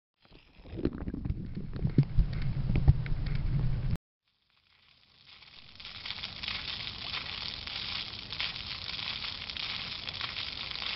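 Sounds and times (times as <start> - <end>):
fountain water splashing: 4.5 - 10.9.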